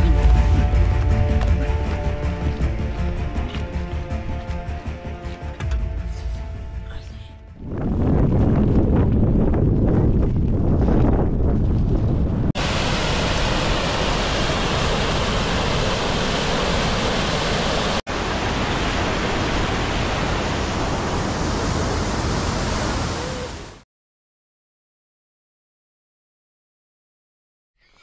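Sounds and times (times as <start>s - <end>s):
wind buffeting microphone: 7.4s - 12.6s
floodwater rushing over ledge: 12.6s - 23.8s.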